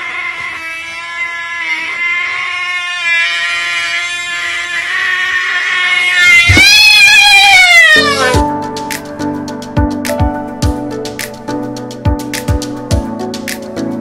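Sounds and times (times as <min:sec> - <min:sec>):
cat yowling: 0:04.8 - 0:08.4.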